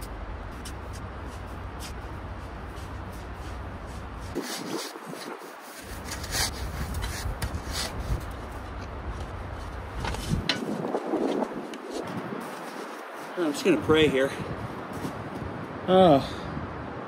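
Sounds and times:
low steady rumble: 0.0 - 11.7
shovel scraping packed snow: 0.6 - 8.3.

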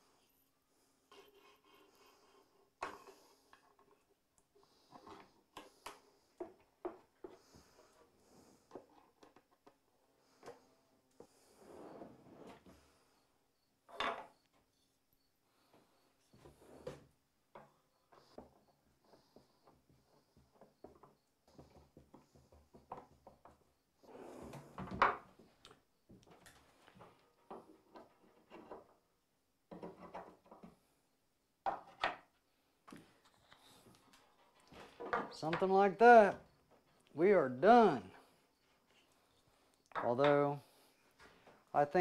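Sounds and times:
wood-on-wood knocks and scrapes: 4.9 - 8.0, 16.4 - 23.6, 26.1 - 29.0, 29.7 - 30.8, 31.6 - 32.3, 32.9 - 35.6.

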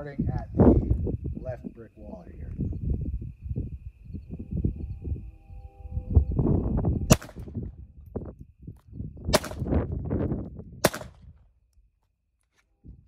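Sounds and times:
low rumbling noise: 0.0 - 11.4
pistol shots: 7.1 - 7.5, 9.3 - 9.7, 10.8 - 11.2.

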